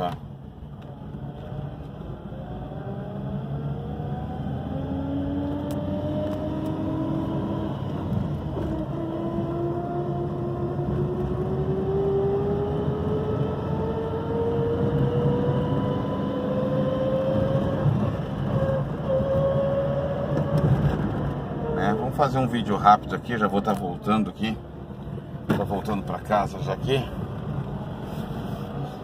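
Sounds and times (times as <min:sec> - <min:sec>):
car engine: 0:00.0 - 0:29.0
road noise: 0:00.0 - 0:29.0.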